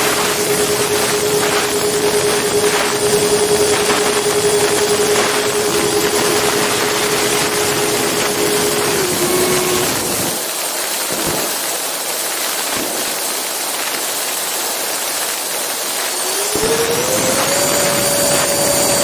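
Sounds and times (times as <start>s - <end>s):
electric ducted fan whine: 0.0s - 10.5s, 16.0s - 19.0s.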